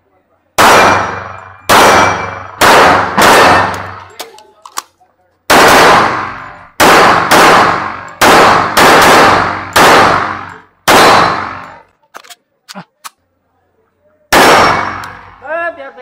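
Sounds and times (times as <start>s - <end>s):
pistol shots: 0.6s - 4.9s, 5.5s - 11.8s, 14.3s - 15.4s.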